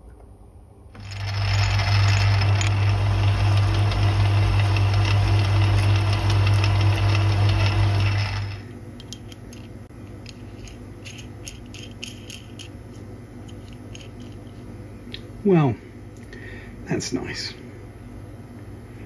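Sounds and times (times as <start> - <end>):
lathe running with rattling gears: 1.0 - 8.6.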